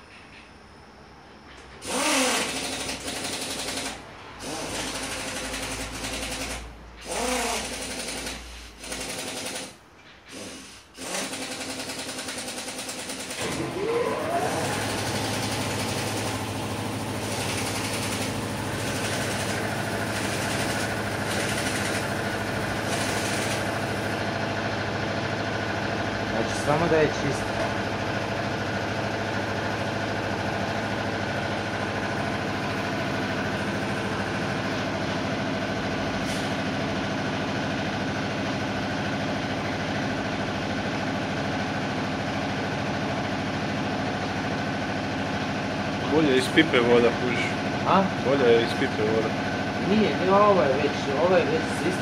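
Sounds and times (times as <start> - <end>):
machine motor starting and stopping: 1.7 - 37.6.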